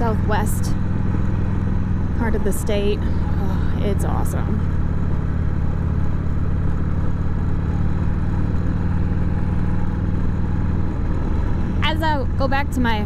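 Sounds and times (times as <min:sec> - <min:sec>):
motorcycle engine running: 0:00.0 - 0:13.0
wind rush and road noise: 0:00.0 - 0:13.0.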